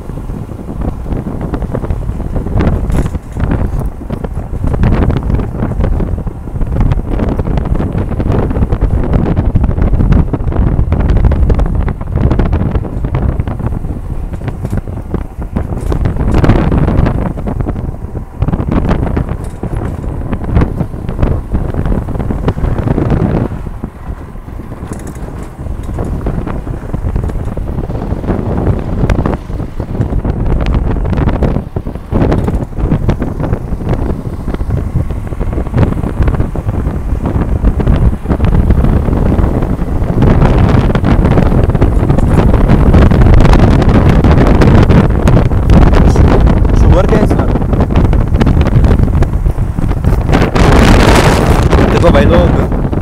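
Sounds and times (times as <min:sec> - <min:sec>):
strong wind buffeting microphone: 0:00.0 - 0:53.0.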